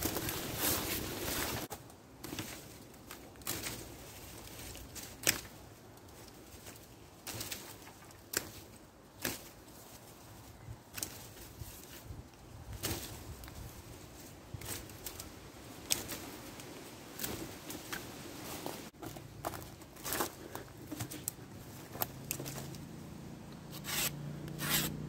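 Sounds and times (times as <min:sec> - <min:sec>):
knife scraping wood: 0:23.7 - 0:25.0.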